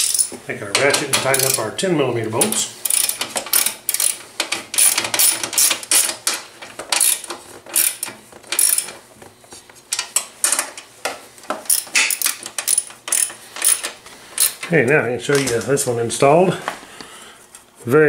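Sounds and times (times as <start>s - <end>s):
socket ratchet clicking: 1.3s - 1.6s, 2.4s - 4.2s, 4.8s - 6.4s, 7.0s - 8.9s, 11.7s - 14.6s.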